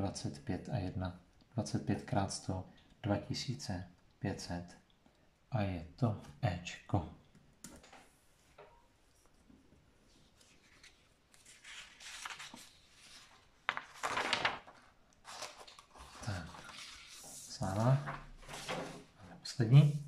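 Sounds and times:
paper rustling and sliding: 0:10.1 - 0:20.0.

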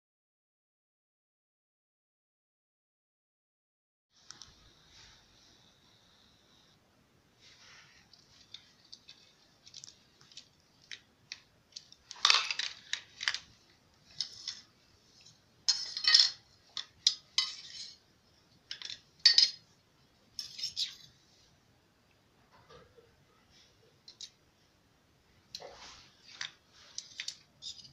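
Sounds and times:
cutlery clinking on tiled floor: 0:15.7 - 0:18.0, 0:18.7 - 0:19.7.

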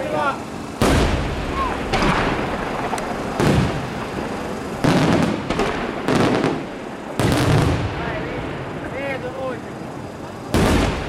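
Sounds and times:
firework booms with rumbling echo: 0:00.8 - 0:09.0, 0:10.5 - 0:11.0.

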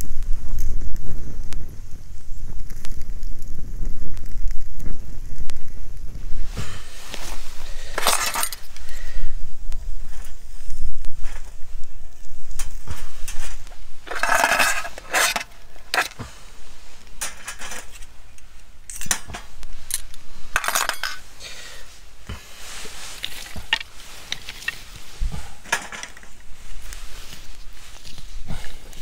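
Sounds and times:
metal tongs scraping a grill: 0:07.9 - 0:08.8, 0:13.2 - 0:16.2, 0:19.9 - 0:21.2, 0:23.0 - 0:25.0.

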